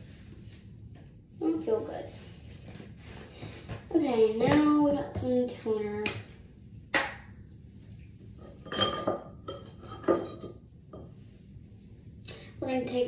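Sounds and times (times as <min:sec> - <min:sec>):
bottles knocking and clinking: 0:08.5 - 0:10.6.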